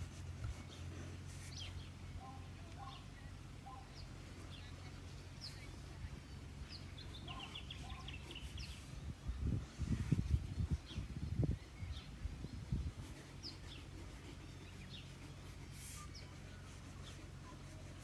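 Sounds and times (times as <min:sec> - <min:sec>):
birds chirping: 0:00.1 - 0:18.0
bird trill: 0:06.7 - 0:08.8.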